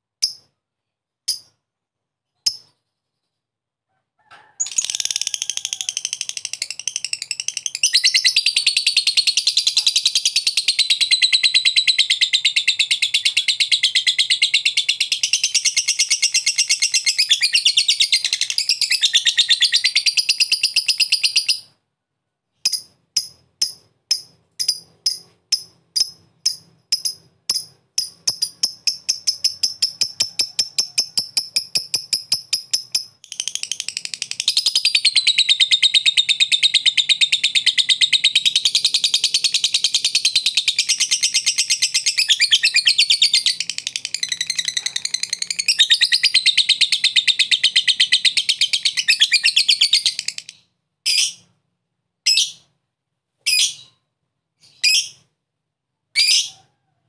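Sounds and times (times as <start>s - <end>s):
lovebird chattering: 22.6s - 51.4s.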